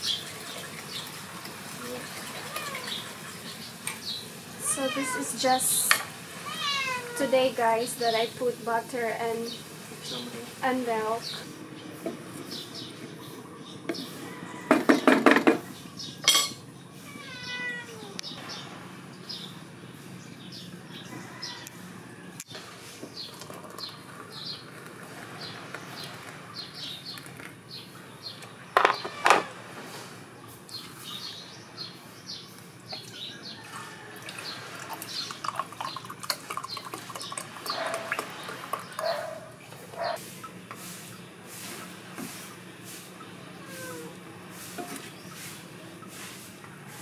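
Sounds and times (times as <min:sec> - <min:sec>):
water pouring into mugs: 0:00.0 - 0:03.7, 0:23.2 - 0:25.1, 0:33.0 - 0:39.1
small birds chirping: 0:01.8 - 0:21.7, 0:22.4 - 0:29.2, 0:30.4 - 0:33.7, 0:34.3 - 0:47.0.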